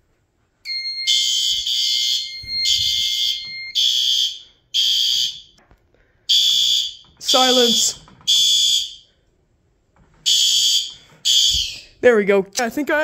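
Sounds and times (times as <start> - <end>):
fire alarm horn blasts: 0.6 - 5.6, 6.3 - 9.2, 10.2 - 11.9.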